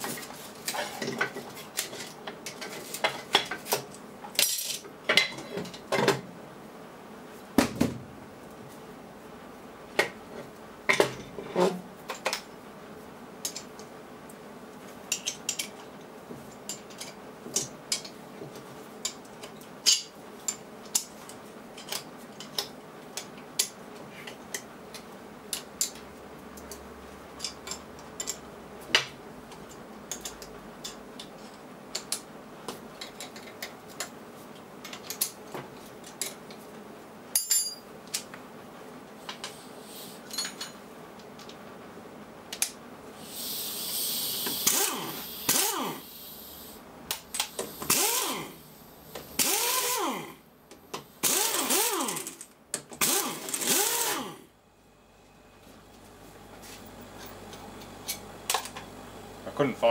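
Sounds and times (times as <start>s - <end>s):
steady background hum: 0.0s - 59.9s
metal tools clinking on steel bench: 37.4s - 37.9s.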